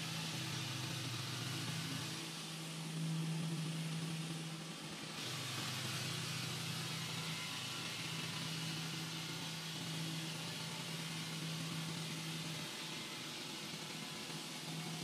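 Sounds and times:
saw motor hum: 0.0 - 15.0
saw blade cutting stone: 5.1 - 15.0.

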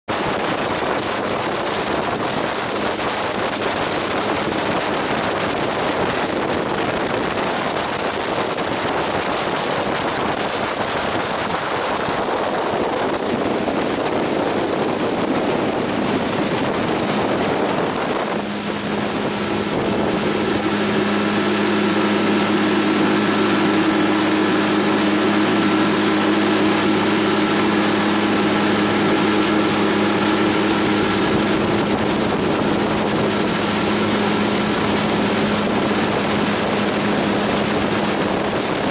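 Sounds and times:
hull spray: 0.1 - 38.9
outboard motor running: 0.1 - 38.9
wind on microphone: 0.1 - 38.9.

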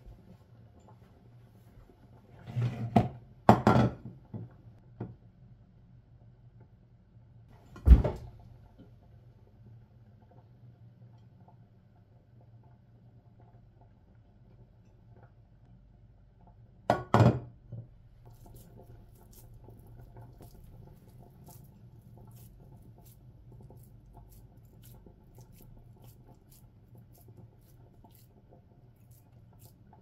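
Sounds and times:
glass dish clattering on countertop: 3.5 - 4.0
meat mixture squishing by hand: 18.1 - 30.0.

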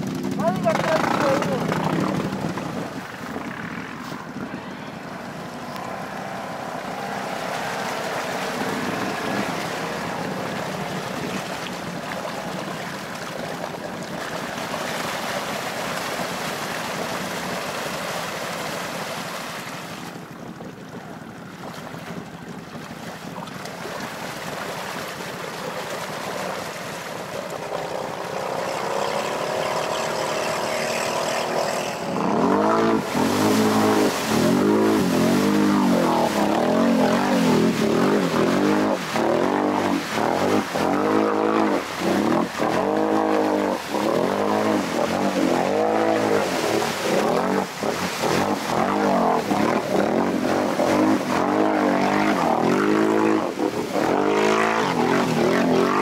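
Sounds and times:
atv engine under load: 0.0 - 4.4, 27.8 - 56.0
water splashing: 0.0 - 56.0.

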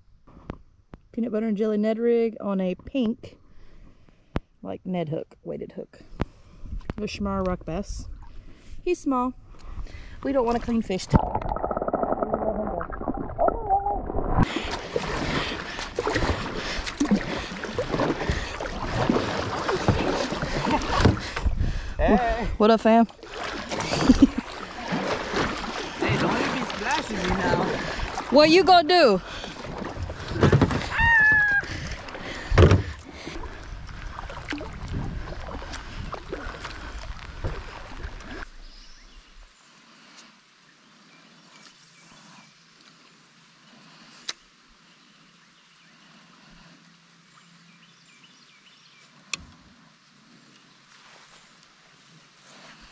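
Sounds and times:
water along hull: 0.0 - 52.9
kayak paddle splashing: 8.0 - 40.1
muffled underwater sound: 10.4 - 15.5
water rushing and dripping: 23.1 - 38.5.

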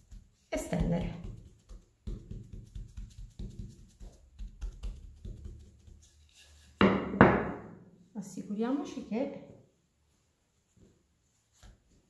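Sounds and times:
rolling pin thumping dough: 0.0 - 5.8.

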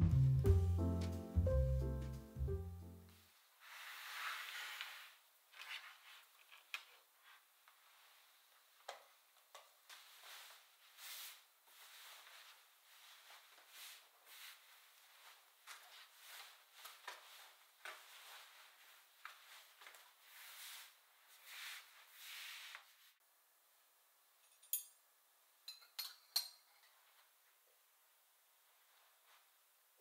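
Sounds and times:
tablecloth rustling and swishing: 3.1 - 8.7, 9.9 - 23.2.

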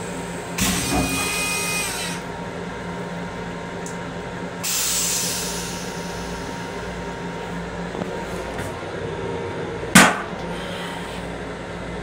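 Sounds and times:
train car hum: 0.0 - 1.4, 2.1 - 12.0
toilet flush hissing spray: 4.6 - 6.6.

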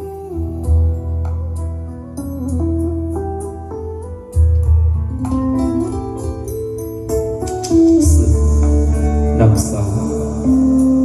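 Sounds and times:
bass: 0.0 - 11.0
guitar melody: 0.0 - 11.0
sustained backing: 4.9 - 11.0.

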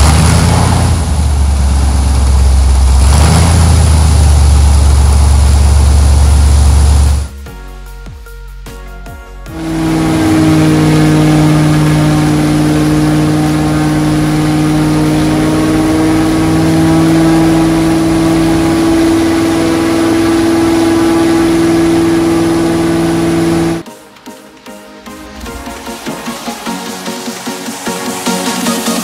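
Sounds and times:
aircraft propeller engine drone: 0.0 - 7.3, 9.5 - 24.0.

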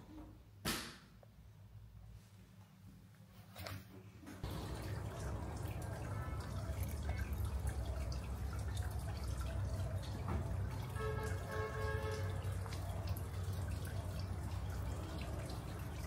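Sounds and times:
low steady hum: 4.4 - 16.0
water dripping: 4.4 - 16.0.

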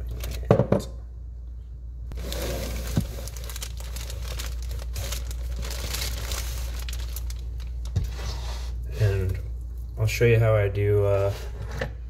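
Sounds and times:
crinkling and rustling: 2.1 - 9.9.

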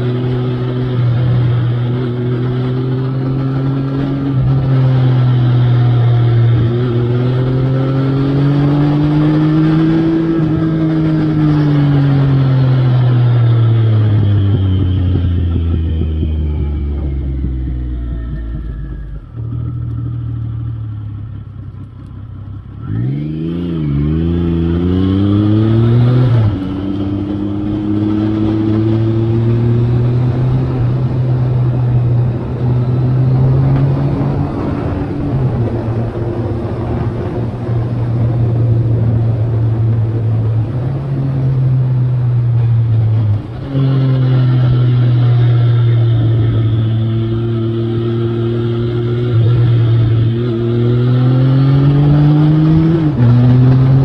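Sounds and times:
motorcycle engine revving: 0.0 - 54.0
wind noise: 23.7 - 54.0.

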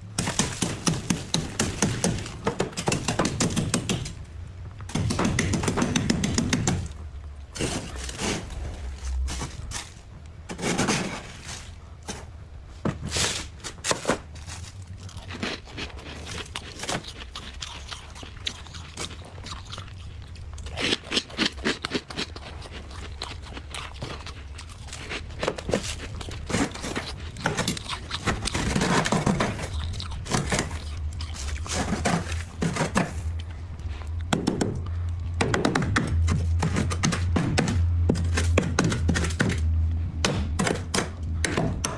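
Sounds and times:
blade scraping frost: 7.6 - 12.2.

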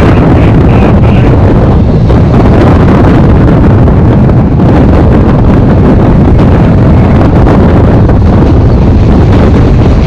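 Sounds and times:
train running on track: 0.0 - 10.0
wind buffeting microphone: 0.0 - 10.0.

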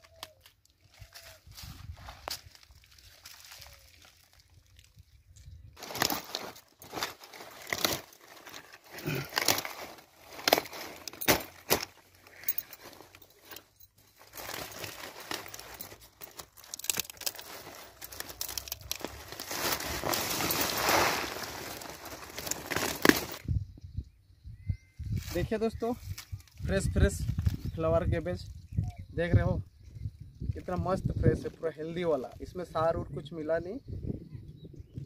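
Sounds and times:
leaves and stalks snapping: 0.0 - 12.5, 14.3 - 23.4
leaves rustling: 0.0 - 23.4.

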